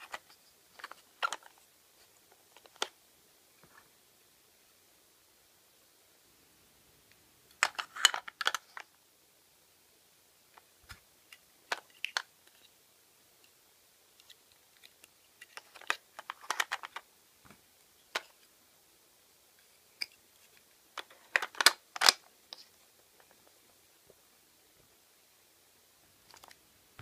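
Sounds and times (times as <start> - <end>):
plastic toy pieces clicking: 14.8 - 17.0.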